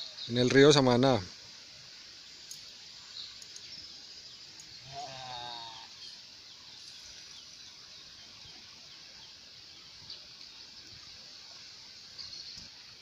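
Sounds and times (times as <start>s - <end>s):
steady high hiss: 0.0s - 13.0s
faint ticks: 2.4s - 3.8s, 4.5s - 4.8s, 11.6s - 12.8s.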